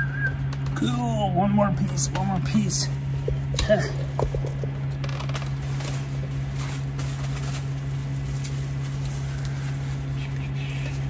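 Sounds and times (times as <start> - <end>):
steady low hum: 0.0 - 11.0
bubble wrap rustling and crinkling: 4.0 - 11.0.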